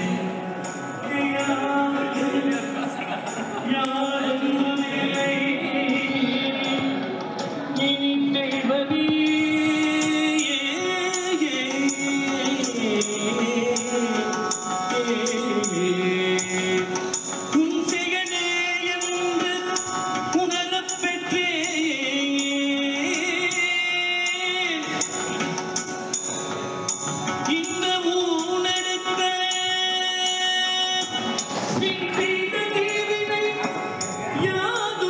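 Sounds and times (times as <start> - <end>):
devotional music melody: 0.0 - 35.0.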